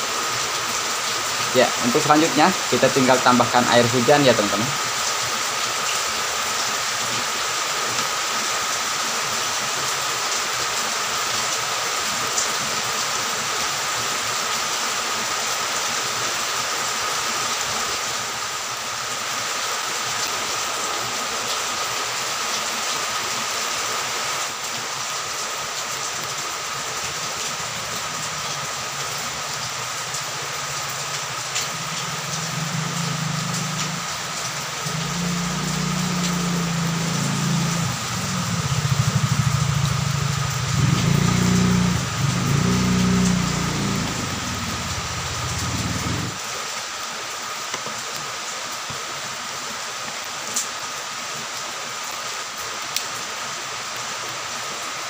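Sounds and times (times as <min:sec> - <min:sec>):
running water hissing: 0:00.0 - 0:08.8, 0:25.8 - 0:46.4.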